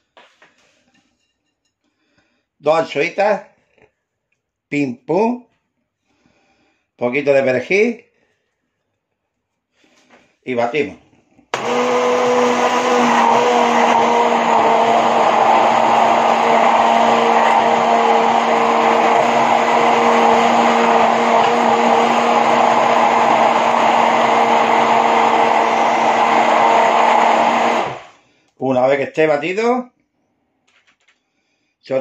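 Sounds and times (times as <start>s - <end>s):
immersion blender motor hum: 11.5s - 28.2s.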